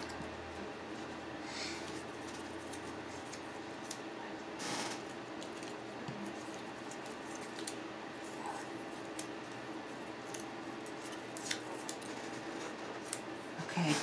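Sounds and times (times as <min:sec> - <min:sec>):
low room hum: 0:00.0 - 0:14.0
paper ticks and rustles: 0:10.2 - 0:13.3.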